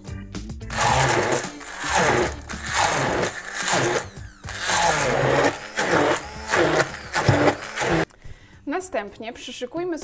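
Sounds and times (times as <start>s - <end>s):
immersion blender motor pureeing: 0.7s - 8.1s.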